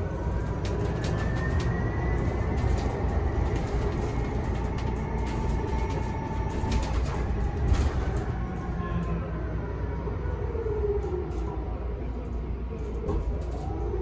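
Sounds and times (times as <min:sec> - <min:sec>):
road and tyre rumble: 0:00.0 - 0:14.0
light rattles and clicks: 0:00.4 - 0:08.4.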